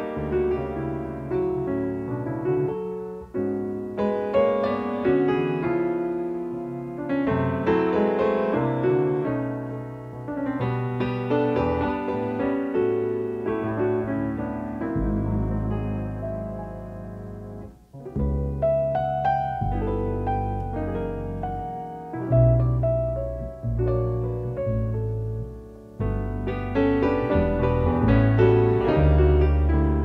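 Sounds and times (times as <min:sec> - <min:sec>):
piano music: 0:00.0 - 0:30.0.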